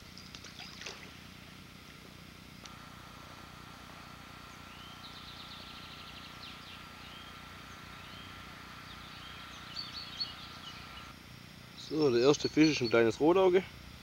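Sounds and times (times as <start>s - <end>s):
faint high-pitched whine: 0.0s - 14.0s
songbird chirping: 4.1s - 13.4s.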